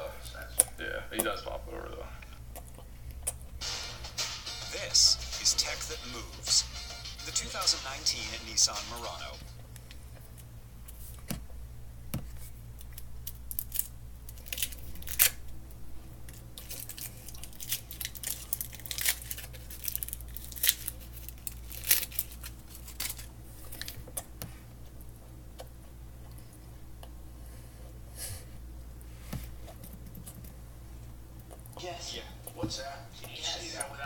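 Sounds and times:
candy wrapper crinkling and tearing: 0:12.7 - 0:15.5, 0:16.2 - 0:24.0.

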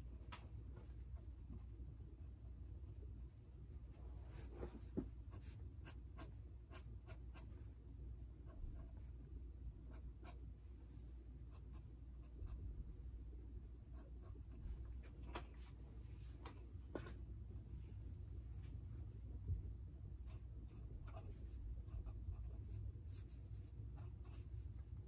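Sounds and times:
low room hum: 0:00.0 - 0:25.0
pen scratching on paper: 0:20.3 - 0:24.6.

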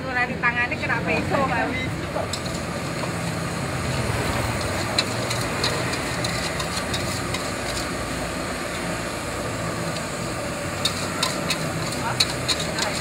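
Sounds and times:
gas burner rushing: 0:00.8 - 0:13.0
spatula clinking on wok: 0:10.8 - 0:13.0.

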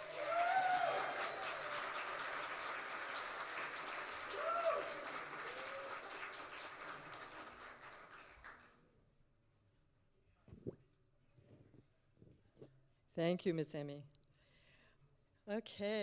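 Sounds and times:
person cheering: 0:00.0 - 0:01.8, 0:04.3 - 0:06.1
audience applauding: 0:00.0 - 0:08.8.

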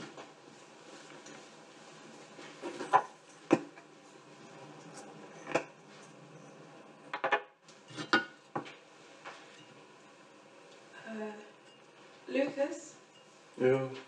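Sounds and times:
dishes and utensils clinking: 0:07.1 - 0:08.7, 0:09.3 - 0:09.8, 0:11.6 - 0:12.1.

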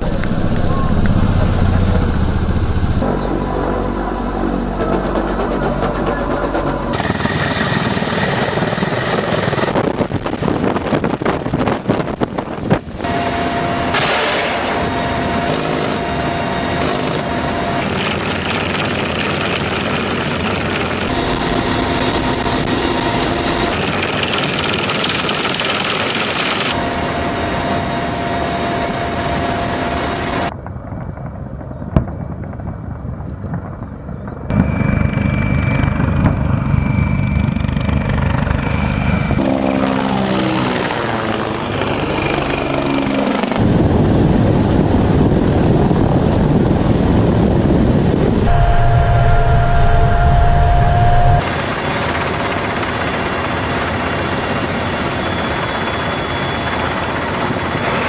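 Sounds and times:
helicopter rotor thudding: 0:00.0 - 0:03.2, 0:05.2 - 0:30.5
turbine engine whine: 0:00.0 - 0:58.0.

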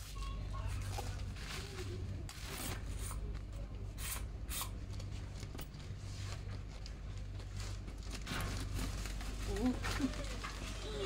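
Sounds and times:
low shop hum: 0:00.0 - 0:11.0.

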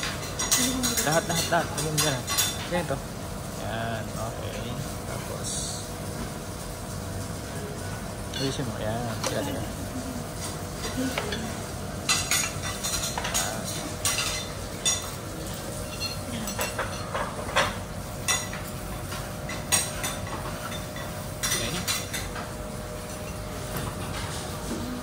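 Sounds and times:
metal utensils clinking on plates: 0:00.0 - 0:03.0, 0:08.4 - 0:25.0
steady background hum: 0:00.0 - 0:25.0.

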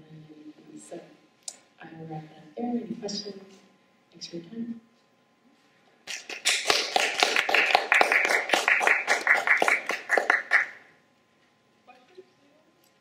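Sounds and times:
audience applauding: 0:06.1 - 0:10.8.

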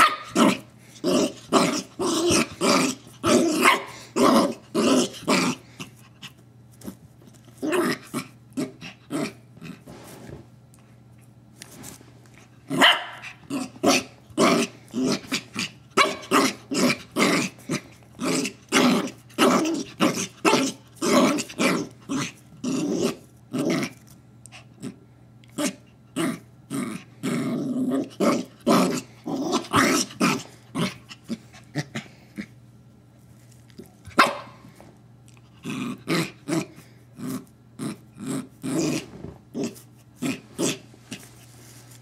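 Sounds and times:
puppy barking: 0:00.0 - 0:00.6, 0:03.6 - 0:04.0, 0:12.7 - 0:14.0, 0:16.0 - 0:16.5, 0:34.2 - 0:34.6
puppy growling: 0:00.0 - 0:06.3, 0:07.6 - 0:10.0, 0:12.7 - 0:32.6, 0:35.3 - 0:41.3.

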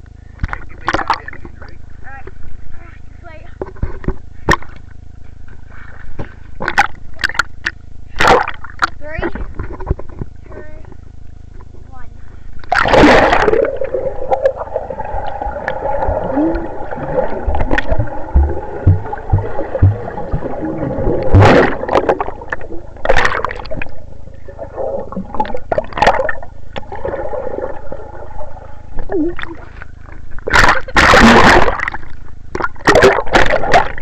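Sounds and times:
steady hum: 0:00.0 - 0:34.0
underwater gurgling and bubbling: 0:12.7 - 0:34.0.

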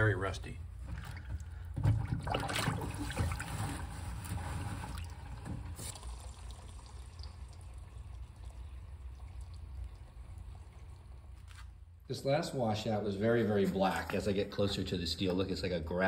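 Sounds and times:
liquid pouring into sink: 0:01.0 - 0:11.5
water trickling down drain: 0:05.0 - 0:11.5.

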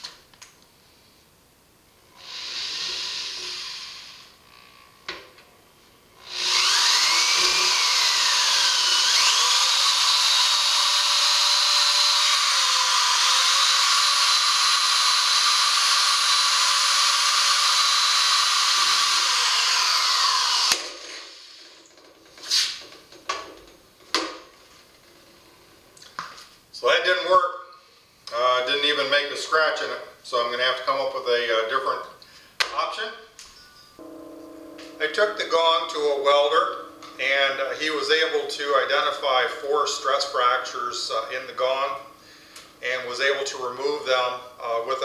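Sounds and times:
electric drill screeching into metal: 0:02.1 - 0:04.8, 0:06.2 - 0:21.7.

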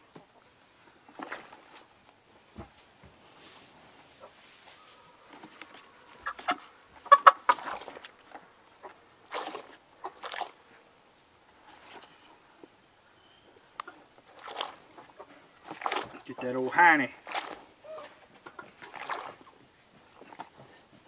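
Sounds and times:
water splashing: 0:01.1 - 0:01.9, 0:07.2 - 0:08.2, 0:08.8 - 0:10.7, 0:14.2 - 0:20.5.

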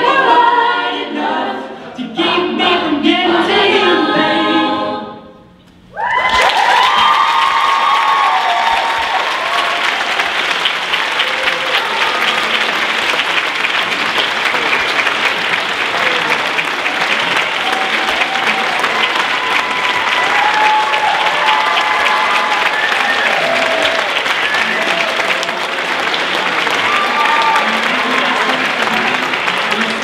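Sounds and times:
choir holding a chord: 0:00.0 - 0:05.4
audience applauding: 0:06.0 - 0:30.0
pitched voices: 0:10.9 - 0:20.4.

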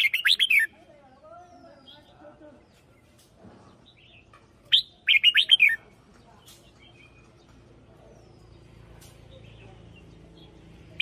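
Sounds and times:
bird singing: 0:00.0 - 0:11.0.

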